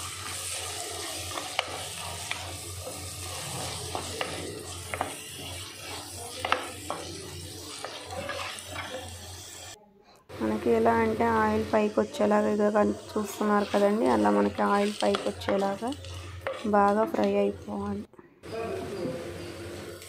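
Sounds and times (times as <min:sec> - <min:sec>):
food sizzling in oil: 0:00.0 - 0:09.8, 0:10.4 - 0:17.8, 0:19.3 - 0:20.0
spatula tapping pot: 0:03.9 - 0:07.2.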